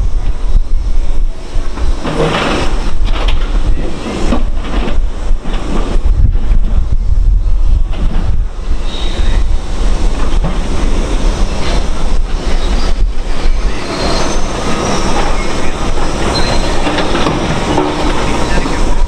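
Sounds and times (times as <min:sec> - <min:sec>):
hydraulic excavator running: 0:00.1 - 0:07.0, 0:07.6 - 0:19.0
high metallic squeals: 0:08.7 - 0:09.5, 0:11.6 - 0:18.9.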